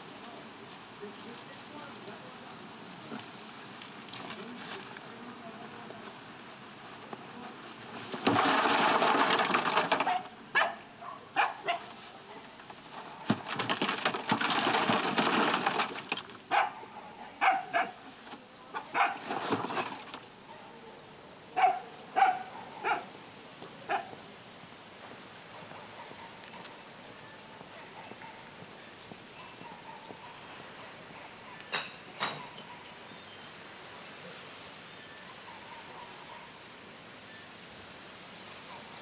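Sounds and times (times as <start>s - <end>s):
dog barking: 10.1s - 12.4s, 16.5s - 18.0s, 18.8s - 19.2s, 21.6s - 23.1s, 23.9s - 24.1s, 25.5s - 26.8s, 27.7s - 28.5s, 29.4s - 31.7s, 32.4s - 32.9s, 35.3s - 36.6s, 38.7s - 39.0s.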